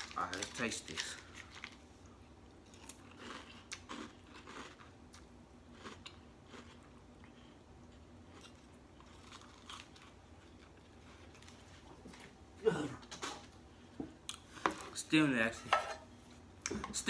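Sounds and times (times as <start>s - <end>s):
chewing crunchy cereal: 0.0s - 1.9s, 2.6s - 12.2s.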